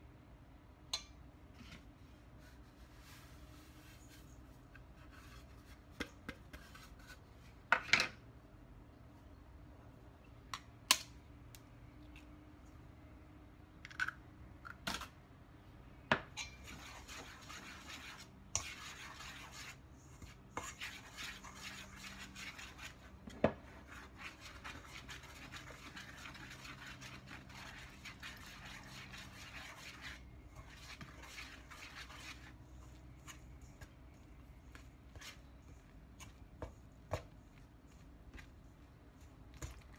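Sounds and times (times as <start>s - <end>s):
utensil scraping flour in metal bowl: 16.4s - 39.9s.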